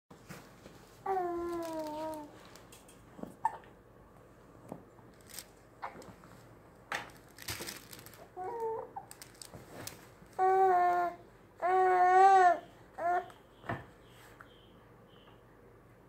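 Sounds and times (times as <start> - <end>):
infant crying: 8.4 - 9.1, 10.4 - 13.3.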